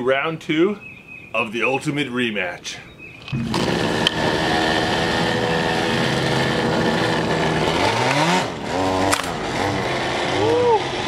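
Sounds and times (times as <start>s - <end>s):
go-kart engine idling and revving: 3.3s - 11.0s
sharp click: 9.1s - 9.4s.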